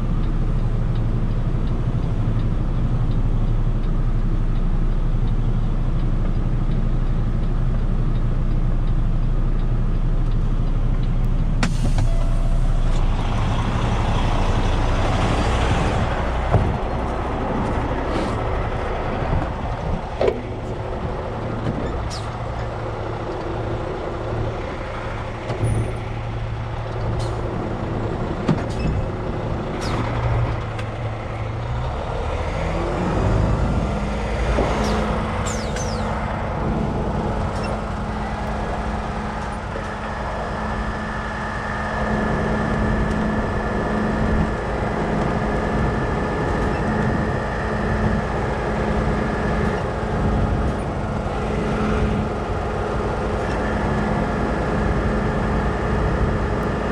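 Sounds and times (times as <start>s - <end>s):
truck engine running: 0.0s - 56.9s.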